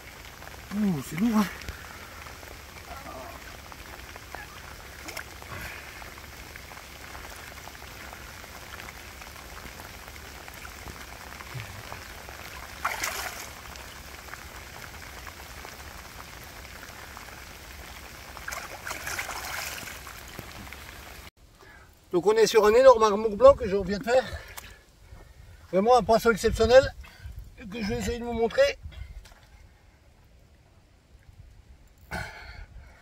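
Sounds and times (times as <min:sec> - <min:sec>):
rain on shallow water: 0:00.0 - 0:33.0
fish splashing in water: 0:01.6 - 0:21.3.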